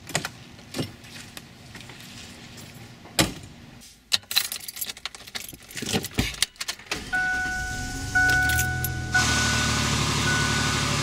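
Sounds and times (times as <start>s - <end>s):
high dashboard warning tone: 7.0s - 11.0s
low hum: 7.1s - 11.0s
keys jangling: 8.3s - 9.0s.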